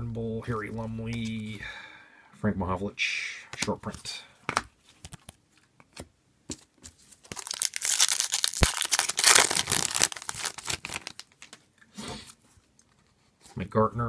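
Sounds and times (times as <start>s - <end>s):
foil wrapper tearing and crinkling: 7.2s - 11.6s.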